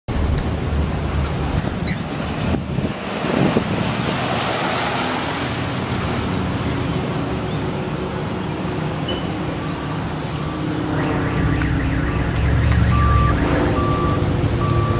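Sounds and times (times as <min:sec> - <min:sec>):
wind buffeting microphone: 0:00.1 - 0:04.4.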